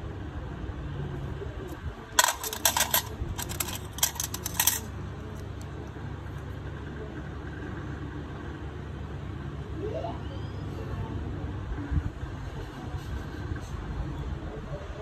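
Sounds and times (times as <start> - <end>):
metal instruments clinking: 2.2 - 4.9.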